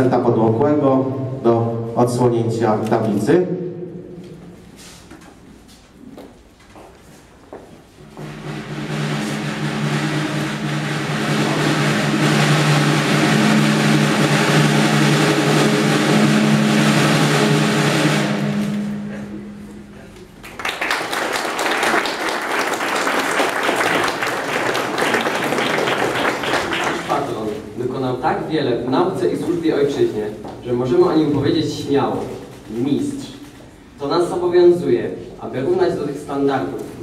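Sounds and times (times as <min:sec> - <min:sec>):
snare drum roll: 0:07.8 - 0:19.8, 0:20.6 - 0:27.8
applause: 0:20.4 - 0:27.6.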